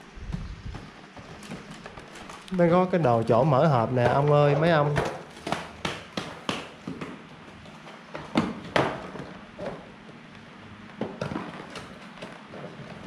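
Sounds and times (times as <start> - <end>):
cardboard packaging tearing and rustling: 0.8 - 3.2.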